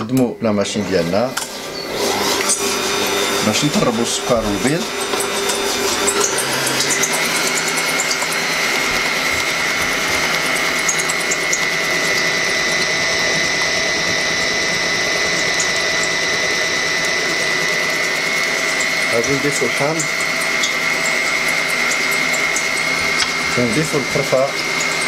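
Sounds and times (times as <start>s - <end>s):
stand mixer motor whine: 0.0s - 25.0s
whisk beating in steel bowl: 2.0s - 25.0s.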